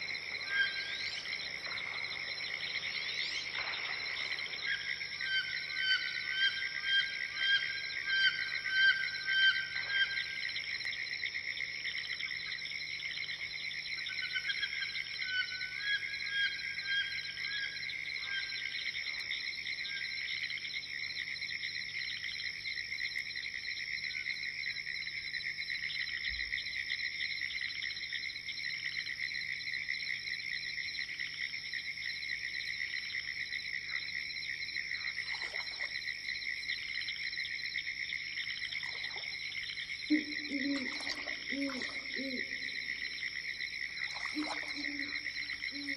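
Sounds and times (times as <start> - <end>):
frogs and insects chorus: 0.0 - 45.9
owl hooting: 40.1 - 42.8.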